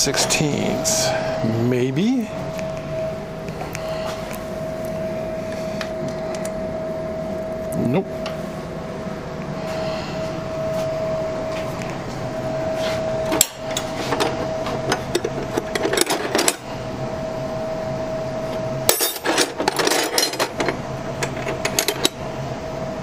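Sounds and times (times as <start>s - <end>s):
metal wrenches clinking: 18.9s - 22.2s.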